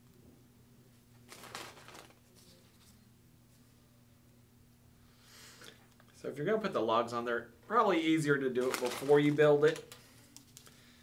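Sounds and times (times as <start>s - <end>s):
faint steady hum: 0.0s - 11.0s
plastic snack bag rustling: 1.2s - 2.9s, 8.5s - 10.8s.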